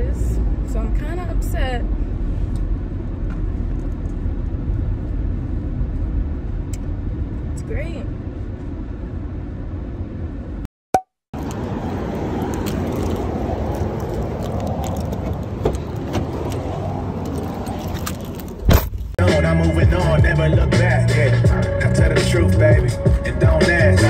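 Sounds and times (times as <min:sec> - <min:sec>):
car road and engine noise: 0:00.0 - 0:10.7, 0:11.3 - 0:24.0
background hip-hop music: 0:19.2 - 0:24.0.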